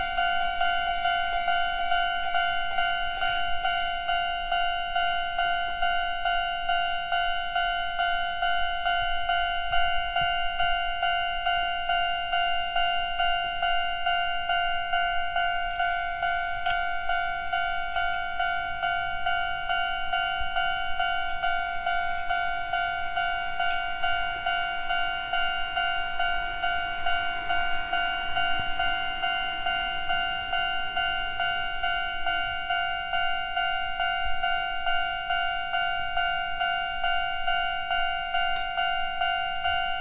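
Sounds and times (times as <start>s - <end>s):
level crossing two-tone bell: 0.0s - 40.0s.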